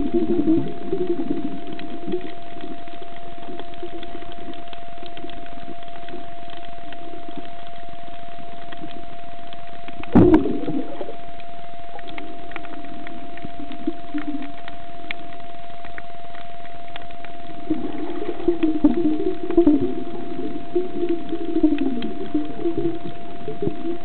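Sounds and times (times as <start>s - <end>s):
constant thin hum: 0.0s - 24.0s
underwater noise with clicks: 0.0s - 24.0s
loud thump with gurgling: 10.1s - 10.9s.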